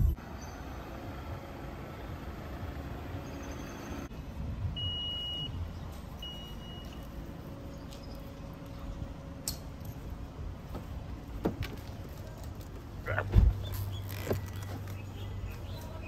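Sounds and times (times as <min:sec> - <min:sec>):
minivan rumbling: 0:00.0 - 0:16.0
car electronic beeps: 0:04.8 - 0:05.6, 0:06.2 - 0:07.0.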